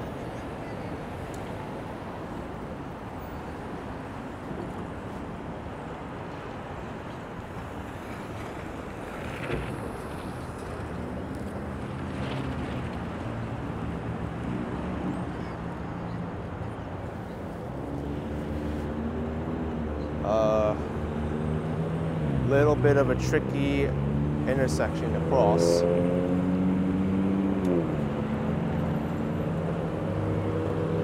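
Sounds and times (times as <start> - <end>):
traffic rushing past: 7.4 - 31.0.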